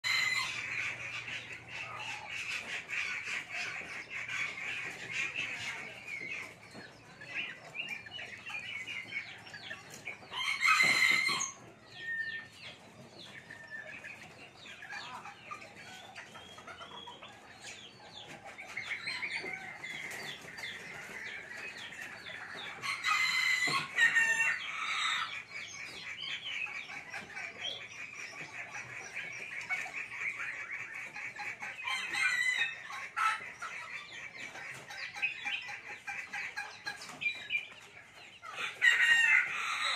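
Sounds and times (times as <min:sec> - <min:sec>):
roosters crowing: 0:00.0 - 0:01.2, 0:10.2 - 0:12.3, 0:22.3 - 0:25.6, 0:31.8 - 0:33.5, 0:38.5 - 0:39.9.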